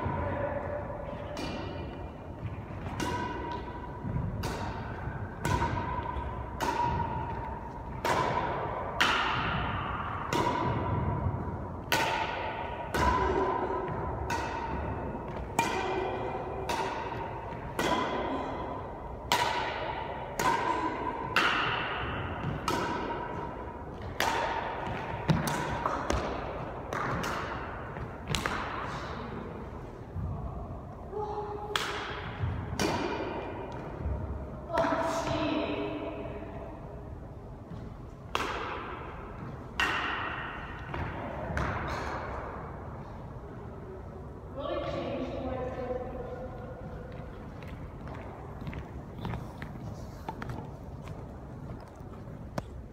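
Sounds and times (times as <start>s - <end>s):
racquets hitting shuttlecock: 1.0s - 29.2s, 31.7s - 35.5s, 38.2s - 43.0s.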